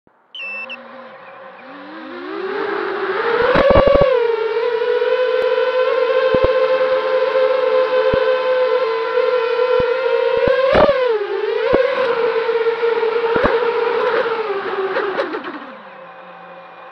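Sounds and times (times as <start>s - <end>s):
drone motors whining: 0.2s - 16.9s
clicks: 6.3s - 6.6s, 13.4s - 13.6s.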